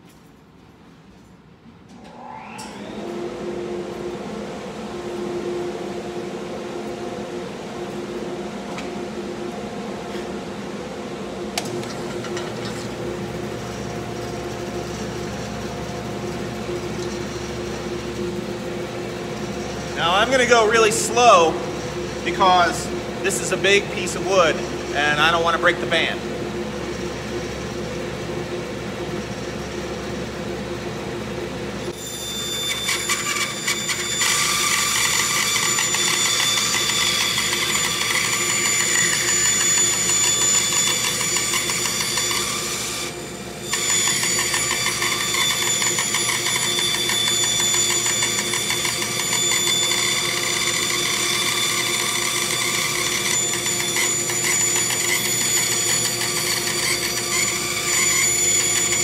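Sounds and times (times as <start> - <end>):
steady whine: 1.8 - 54.2
bandsaw cutting wood: 32.6 - 59.0.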